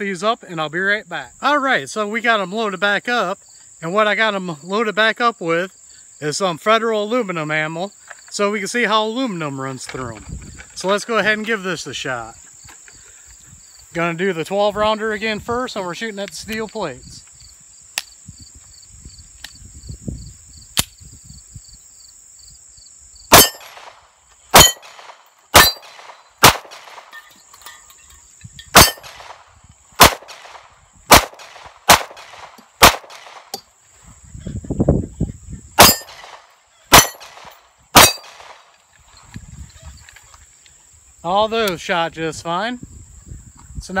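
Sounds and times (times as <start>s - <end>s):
pistol shots: 23.3s - 27.1s, 28.7s - 29.4s, 30.0s - 33.6s, 35.8s - 38.7s
steel targets clanging: 25.6s - 26.0s, 35.8s - 36.2s, 38.0s - 38.4s.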